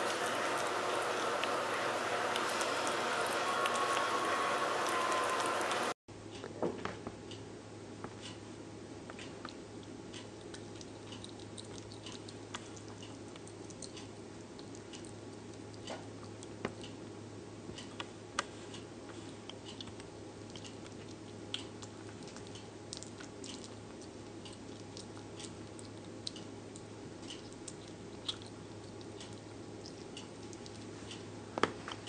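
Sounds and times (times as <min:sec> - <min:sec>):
steady low hum: 0:00.0 - 0:32.0
animal chewing wet clicks: 0:09.2 - 0:17.0, 0:19.5 - 0:31.2.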